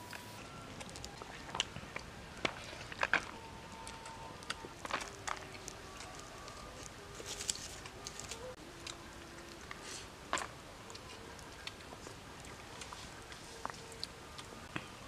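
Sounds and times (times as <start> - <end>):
person chewing: 2.6 - 14.6.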